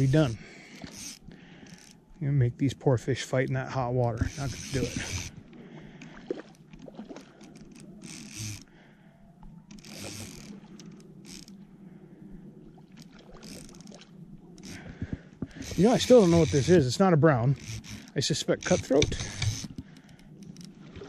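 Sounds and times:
fishing reel clicking: 0.0s - 2.0s, 4.2s - 5.4s, 7.4s - 8.7s, 9.7s - 11.6s, 13.4s - 13.9s, 14.6s - 14.9s, 15.5s - 20.8s
reel rasping bursts: 0.0s - 2.0s, 3.2s - 5.4s, 7.4s - 8.7s, 9.7s - 11.6s, 14.6s - 20.7s.

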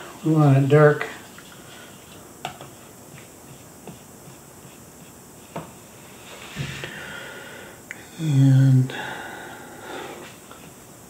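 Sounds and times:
brush rubbing on paper: 1.2s - 6.5s.

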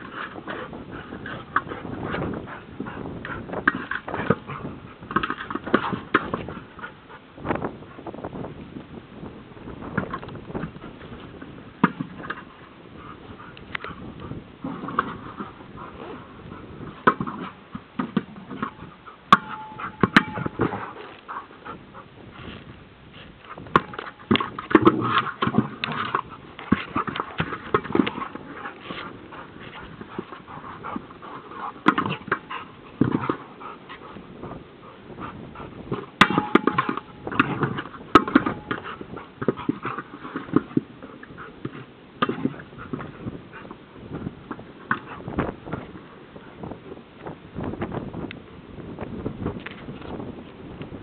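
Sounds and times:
ball knocks and bumps: 0.0s - 6.8s, 9.9s - 12.5s, 14.6s - 16.1s, 16.8s - 21.1s, 23.5s - 33.5s, 35.8s - 46.0s.

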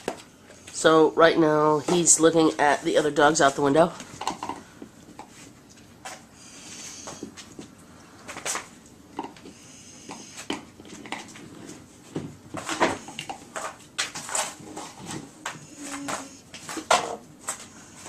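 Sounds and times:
dog wheezing: 6.4s - 7.3s.

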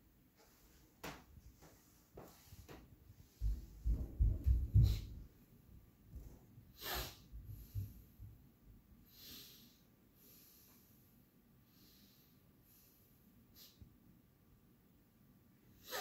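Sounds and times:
soft low thumps: 3.3s - 5.4s
nasal snort: 6.8s - 7.2s.

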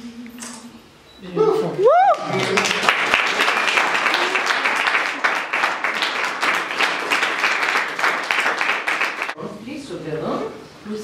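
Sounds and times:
crowd applauding: 2.1s - 9.4s.

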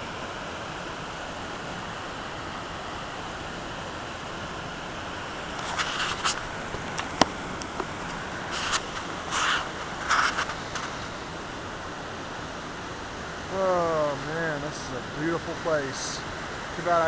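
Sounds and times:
creek and waterfall rushing: 0.0s - 17.0s
camera handling scraping and rustling: 5.5s - 11.1s.

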